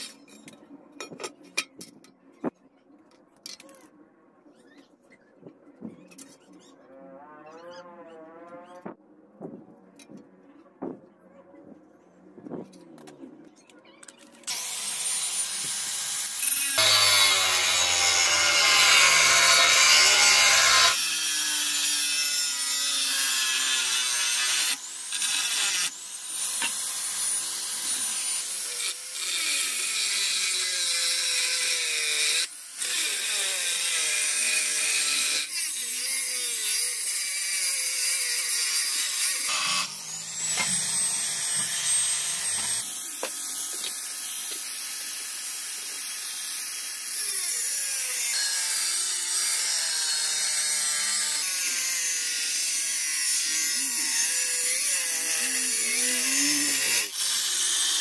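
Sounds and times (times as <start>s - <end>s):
angle grinder cutting steel: 14.4s - 58.0s.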